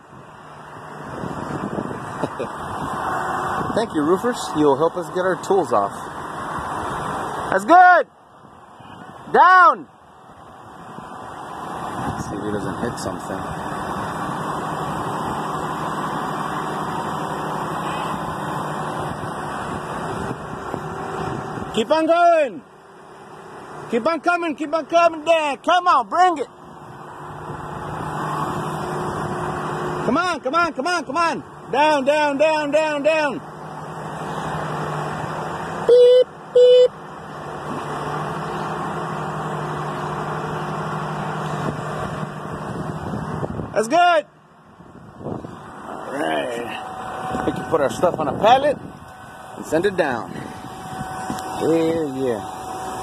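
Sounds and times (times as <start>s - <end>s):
boom lift engine droning: 0.0s - 53.0s
loud horn blasts: 8.7s - 9.2s, 35.8s - 36.9s, 46.6s - 53.0s.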